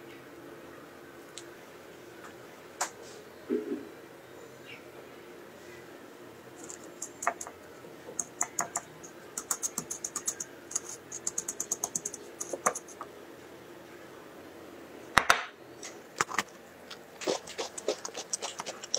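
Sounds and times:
cookie crumbs crackling: 6.6 - 7.6, 8.2 - 13.0, 16.2 - 18.9.

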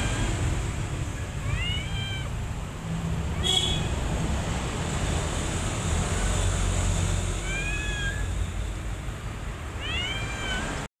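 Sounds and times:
kittens mewing: 1.3 - 2.4, 9.8 - 10.9.

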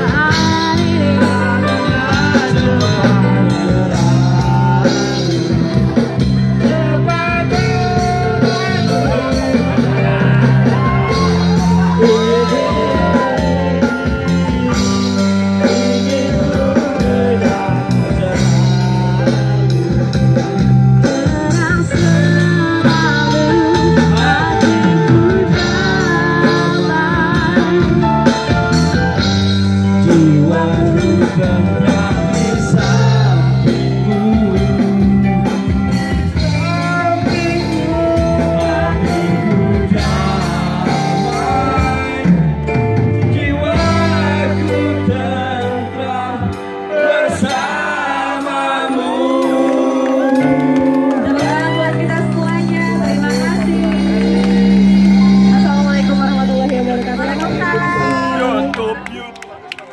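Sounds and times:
people singing into microphones: 0.0 - 58.9
electric guitar: 0.0 - 59.9.

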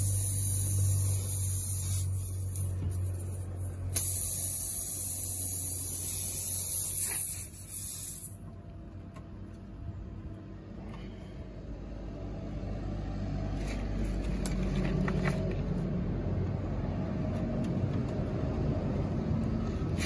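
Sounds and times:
air hissing from tyre: 0.0 - 8.5, 19.7 - 20.0.

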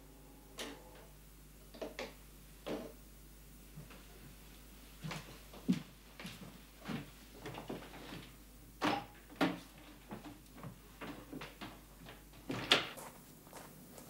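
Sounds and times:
footsteps on a floor: 5.0 - 8.3, 10.0 - 14.0.

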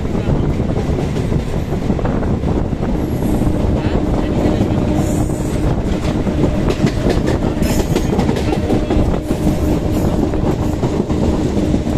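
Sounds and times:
electric locomotive passing: 0.0 - 11.9
train rumble: 0.0 - 11.9
wind noise: 0.0 - 11.9
train wheels clacking on rail joints: 3.2 - 11.9.

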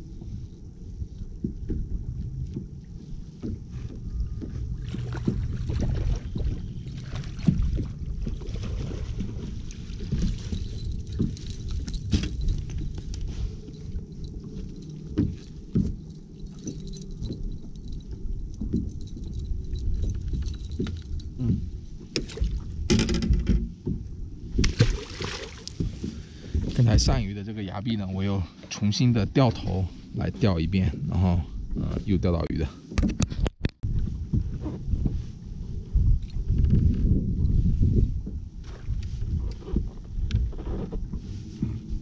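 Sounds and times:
water lapping at boat hull: 0.1 - 22.9, 23.7 - 26.9
metallic jingling of fishing lure: 10.0 - 21.5
wind on microphone: 32.9 - 42.0.

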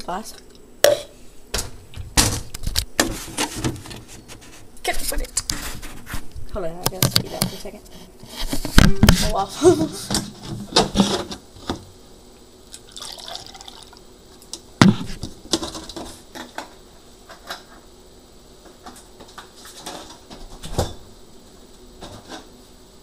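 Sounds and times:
water poured into a glass: 12.8 - 14.0.

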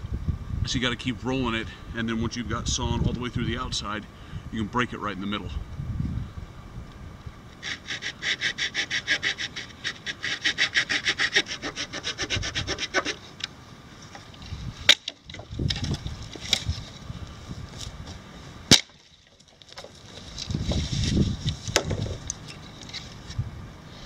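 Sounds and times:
small saw cutting branch: 7.6 - 13.4
wood handling: 12.4 - 17.1, 17.7 - 23.4.

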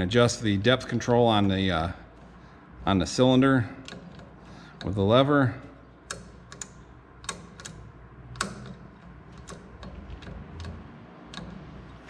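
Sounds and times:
control switch clicks: 6.0 - 11.6.

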